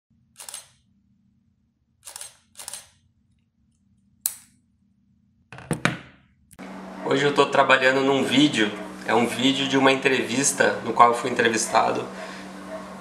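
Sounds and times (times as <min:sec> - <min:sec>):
camera shutter clicks: 0:00.4 - 0:00.8, 0:02.0 - 0:03.0.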